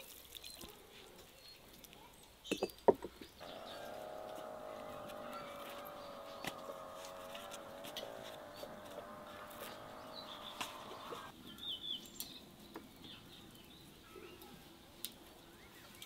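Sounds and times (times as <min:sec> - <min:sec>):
birds chirping: 0:02.4 - 0:12.4.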